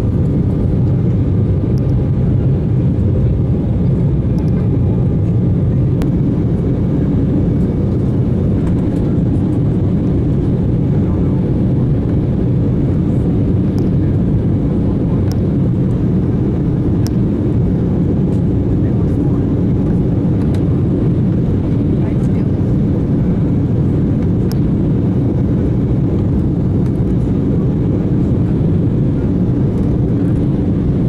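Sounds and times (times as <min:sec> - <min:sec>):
jet engines rumbling: 0:00.0 - 0:31.0
rushing airflow: 0:00.0 - 0:31.0.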